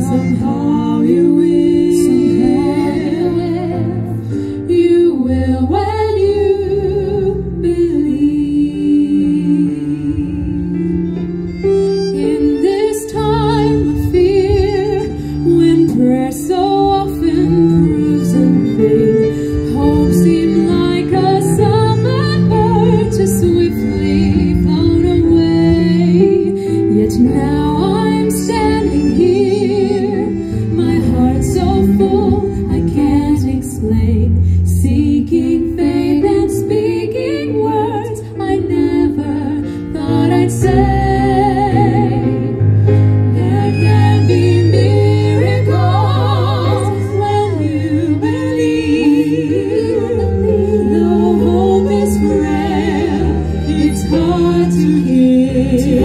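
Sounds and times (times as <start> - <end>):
cello: 0.0 - 56.0
piano: 0.0 - 56.0
violin: 0.0 - 56.0
women singing with vibrato: 0.0 - 56.0.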